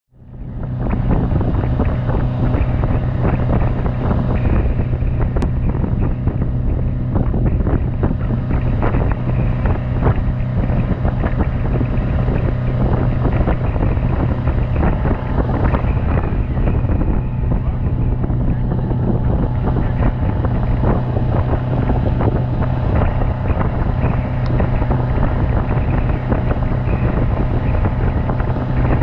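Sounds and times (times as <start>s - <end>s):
outboard motor running: 0.1s - 29.0s
wind buffeting microphone: 0.1s - 29.0s
churning wake rushing: 0.2s - 29.0s.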